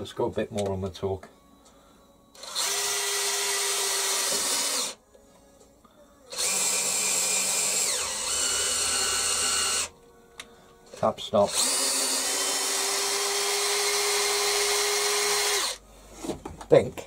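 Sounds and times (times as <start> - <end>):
cordless drill running: 2.4 - 5.0, 6.3 - 9.9, 11.5 - 15.8.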